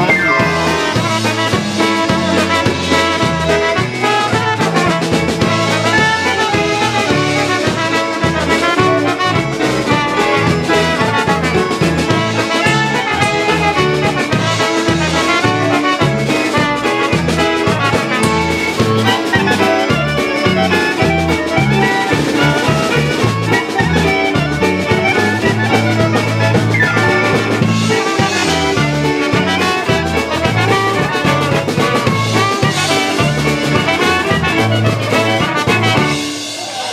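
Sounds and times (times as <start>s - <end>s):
low bass beat: 0.0s - 3.7s, 15.5s - 36.1s
electric keyboard: 0.0s - 36.8s
drum kit: 0.0s - 36.9s
trumpet: 0.0s - 36.9s.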